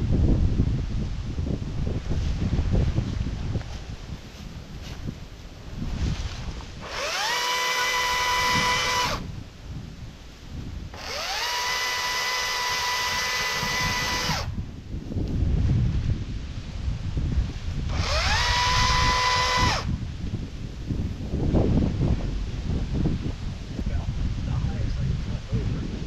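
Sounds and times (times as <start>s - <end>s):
cordless drill whine: 6.8s - 9.3s, 10.9s - 14.6s, 17.9s - 20.0s.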